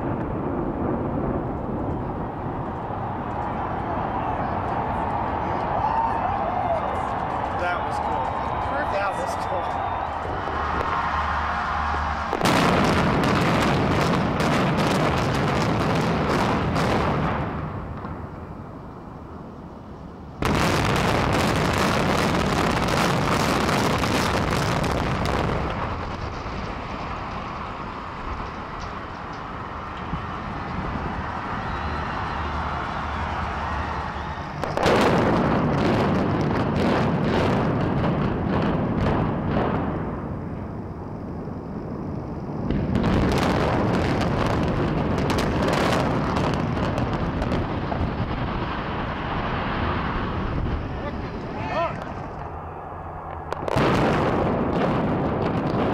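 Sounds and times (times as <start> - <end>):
building collapsing rumble: 0.0 - 55.9
crackling debris: 20.3 - 55.9.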